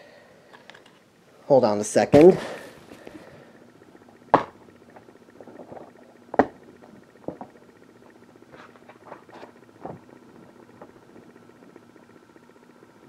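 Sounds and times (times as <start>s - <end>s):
knocks on plastic cases: 4.3s - 4.6s.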